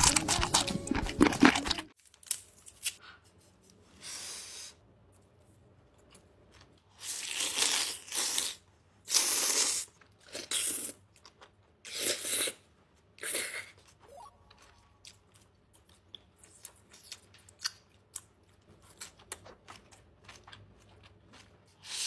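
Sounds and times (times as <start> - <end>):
woman chewing: 0.0 - 2.0, 13.6 - 22.0.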